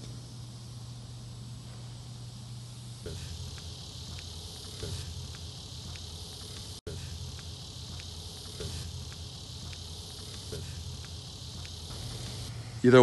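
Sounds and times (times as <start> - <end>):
crickets and insects chirping: 0.0 - 13.0
low steady hum: 0.0 - 13.0.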